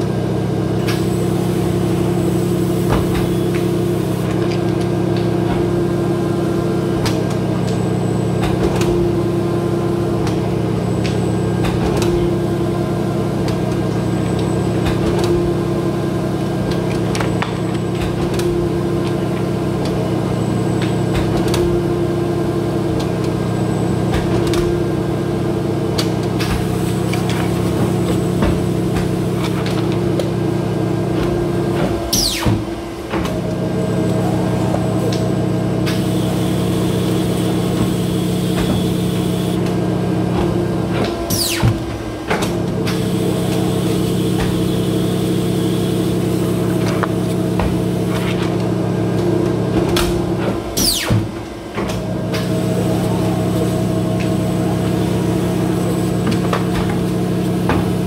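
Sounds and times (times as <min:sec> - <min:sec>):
paper cutter motor humming: 0:33.4 - 0:58.0.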